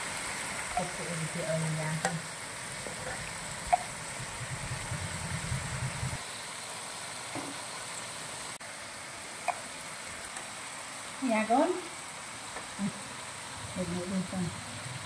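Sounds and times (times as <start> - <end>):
bugs sizzling in a wok: 0.0 - 15.0
low hum: 3.1 - 6.2.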